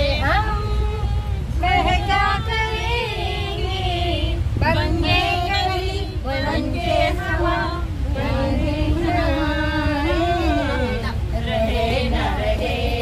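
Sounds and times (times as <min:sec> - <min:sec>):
women singing: 0:00.0 - 0:13.0.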